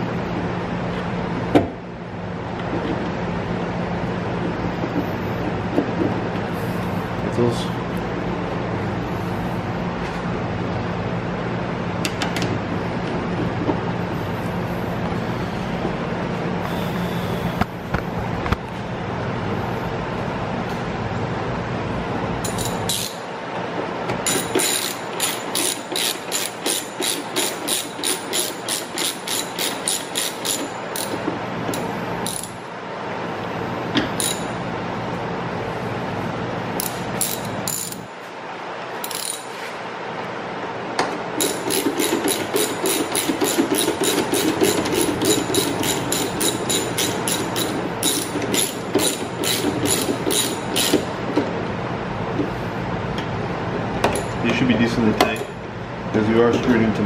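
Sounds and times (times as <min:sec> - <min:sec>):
hand ratchet clicking: 0:22.4 - 0:23.2, 0:24.3 - 0:32.6, 0:36.8 - 0:38.0, 0:39.0 - 0:39.5, 0:41.4 - 0:51.1.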